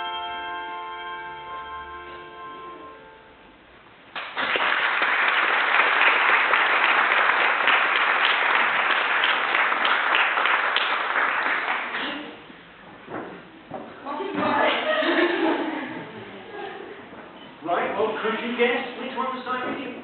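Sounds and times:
applause: 4.1s - 12.3s.

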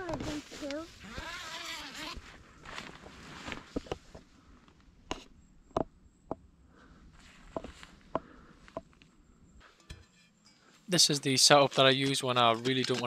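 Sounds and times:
tent fabric rustling: 0.0s - 4.2s
footsteps on forest floor: 7.2s - 8.2s.

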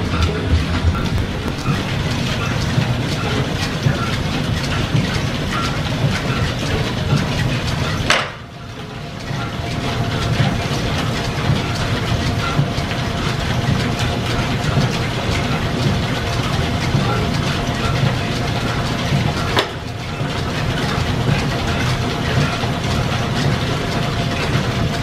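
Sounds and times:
belt-driven milling machine clattering: 0.0s - 25.0s
line shaft and flat belts running: 0.0s - 25.0s.

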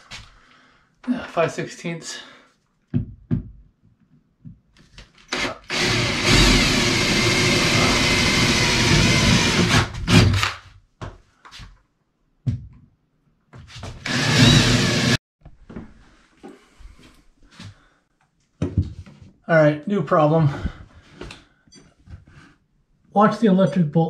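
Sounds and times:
cordless drill boring wood: 5.3s - 10.4s, 14.0s - 15.2s.

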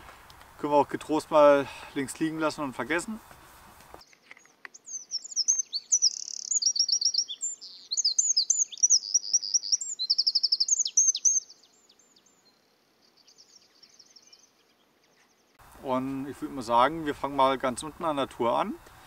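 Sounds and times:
songbird chirping and trilling: 4.0s - 15.6s.

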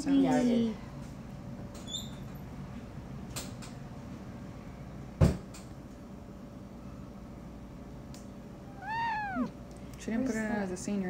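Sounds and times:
low steady hum: 6.7s - 10.4s
kitten meowing: 8.6s - 9.6s.

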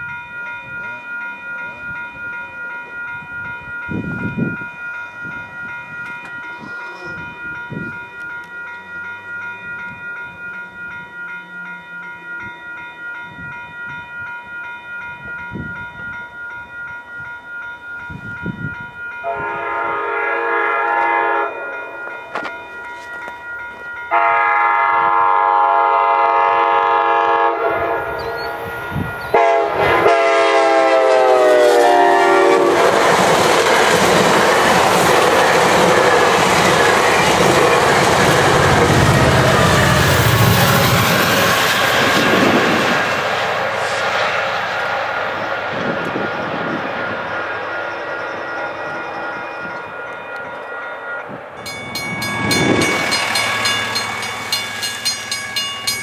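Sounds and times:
level crossing warning bell: 0.0s - 44.0s, 45.3s - 56.0s
train wheels rushing on rails: 18.1s - 56.0s
train horn blasts: 19.2s - 22.1s, 24.1s - 33.4s.

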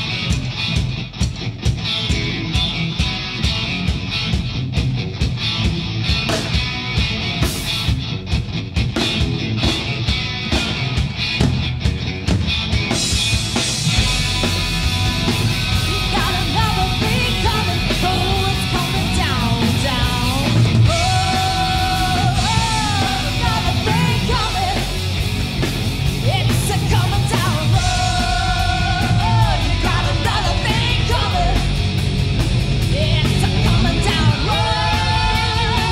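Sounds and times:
bass: 0.0s - 35.9s
distorted electric guitars: 0.0s - 35.9s
drums: 0.0s - 35.9s
woman singing: 15.9s - 24.9s, 26.2s - 31.7s, 32.9s - 35.9s.

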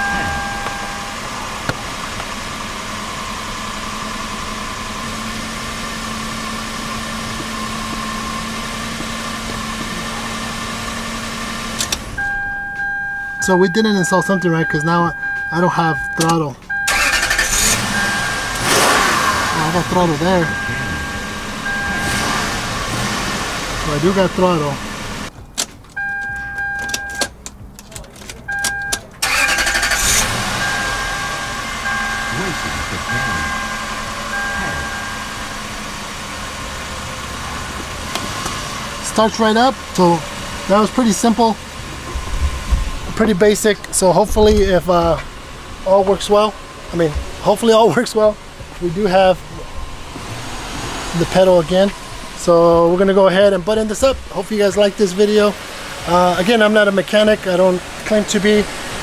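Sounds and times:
steady electronic chime: 0.0s - 1.6s, 17.9s - 22.5s, 30.4s - 35.9s
car engine idling: 0.0s - 59.0s.

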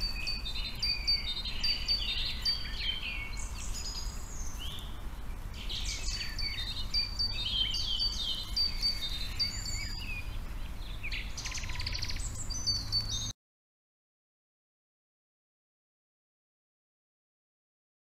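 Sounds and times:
songbirds chirping and trilling: 0.0s - 13.4s.

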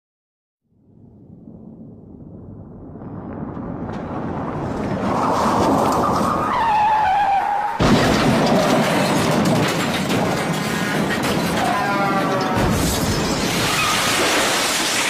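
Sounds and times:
vehicle noise: 2.7s - 15.0s
tyre screech: 5.9s - 8.1s, 10.8s - 15.0s
sudden rush of noise: 12.5s - 15.0s.

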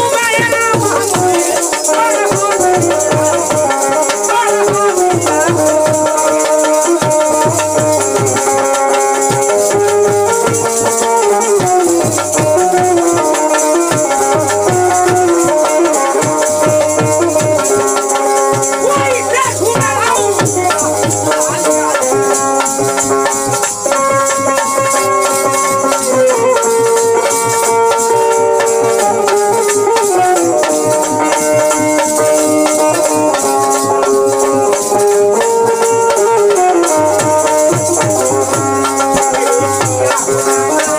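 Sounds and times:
hand drum beat: 0.0s - 40.9s
instrumental folk music: 0.0s - 40.9s
jingling hand percussion: 0.0s - 40.9s
sustained keyed melody: 0.0s - 40.9s.

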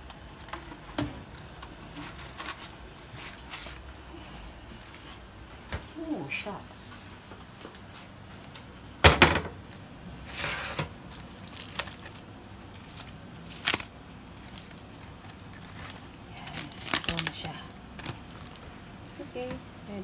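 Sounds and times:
aluminium foil crinkling: 0.0s - 3.9s, 11.1s - 19.5s.

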